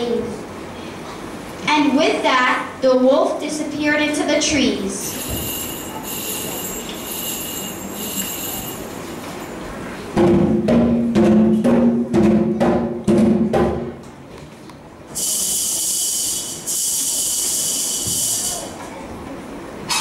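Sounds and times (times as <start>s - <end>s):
pitched drum beats: 10.1s - 14.0s
steady high hiss: 15.1s - 19.0s.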